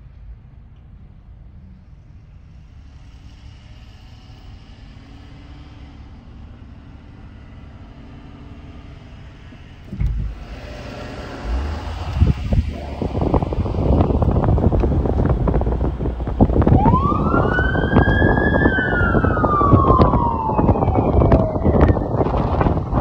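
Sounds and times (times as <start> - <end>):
car cabin rumble: 9.0 - 23.0
wind buffeting microphone: 9.7 - 23.0
faint wavering tones: 11.2 - 22.2.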